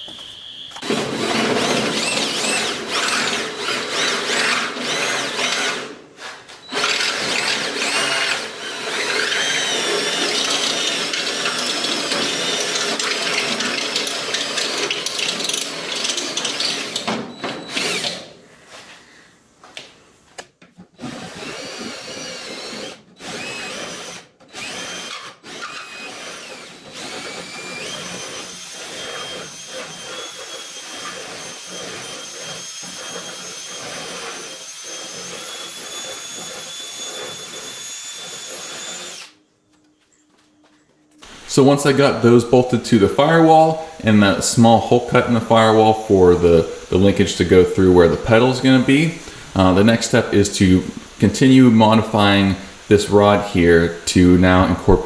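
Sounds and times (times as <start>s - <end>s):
cordless drill cutting metal: 0.1s - 18.3s, 21.0s - 39.5s, 41.2s - 44.4s.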